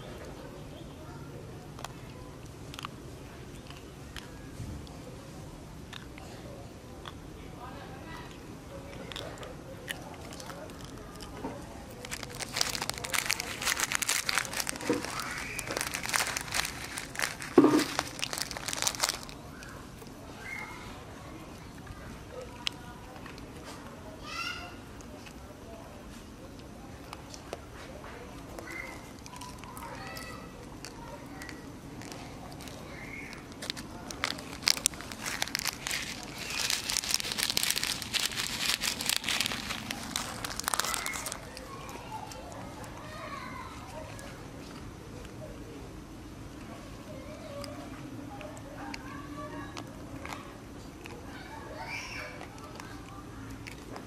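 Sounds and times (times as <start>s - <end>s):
dense crinkling and crackling: 9.9s - 20.2s, 27.0s - 43.1s, 48.4s - 54.0s.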